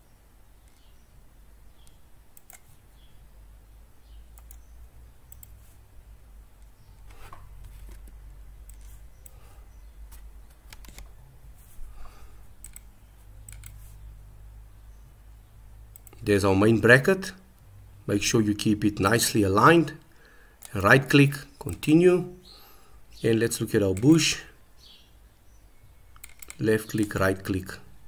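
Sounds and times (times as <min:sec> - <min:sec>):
low steady hum: 0:00.0 - 0:28.0
computer mouse clicks: 0:00.6 - 0:01.0, 0:01.8 - 0:02.8, 0:04.3 - 0:04.7, 0:05.3 - 0:05.7, 0:06.6 - 0:09.4, 0:10.1 - 0:11.2, 0:12.6 - 0:14.0, 0:15.9 - 0:16.2, 0:26.1 - 0:26.6.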